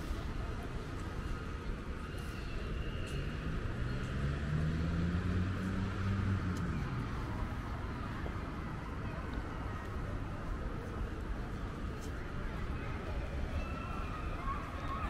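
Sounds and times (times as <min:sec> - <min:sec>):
city street noise: 0:00.0 - 0:15.0
passing vehicle engine hum: 0:03.1 - 0:08.7.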